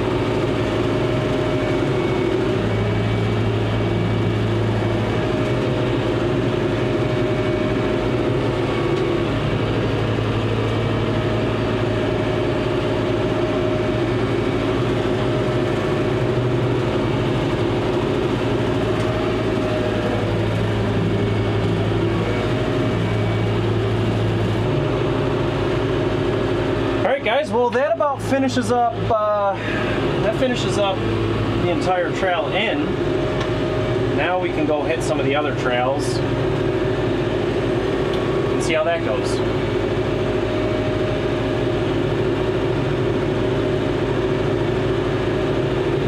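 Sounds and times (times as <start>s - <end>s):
rotary cutter mowing: 0.0s - 46.0s
tractor diesel engine running: 0.0s - 46.0s.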